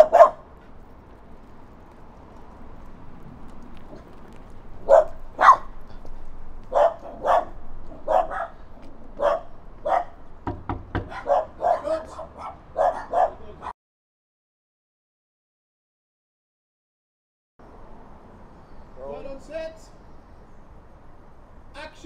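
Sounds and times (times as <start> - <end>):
small dog barking: 0.0 - 0.5, 4.8 - 5.8, 6.7 - 8.6, 9.2 - 10.2, 11.1 - 13.7
sharp taps: 10.4 - 11.2.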